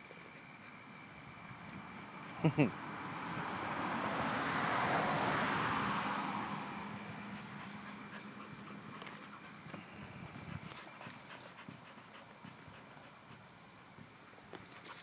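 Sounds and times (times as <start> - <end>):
vehicle passing: 0.0 - 11.4.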